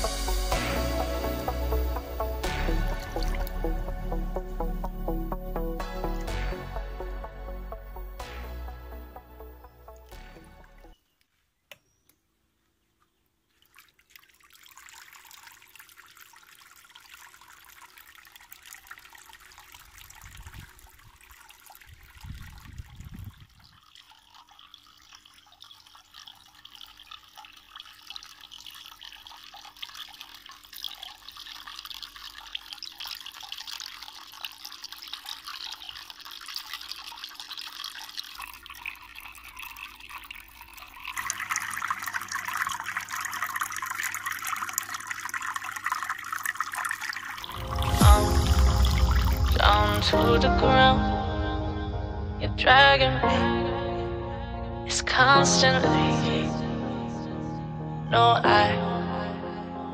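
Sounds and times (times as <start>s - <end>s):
water splashing into a tank: 0.0s - 3.9s, 13.4s - 50.2s.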